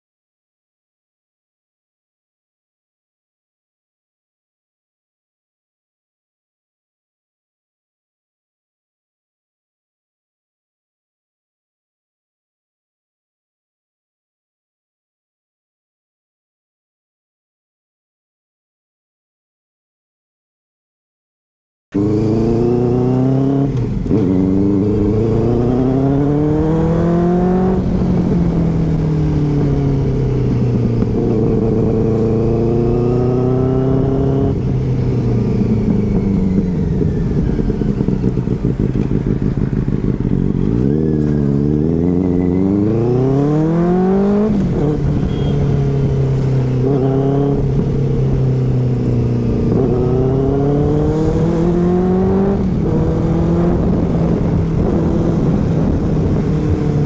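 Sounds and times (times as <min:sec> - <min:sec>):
motorcycle engine shifting gears: 0:22.0 - 0:57.0.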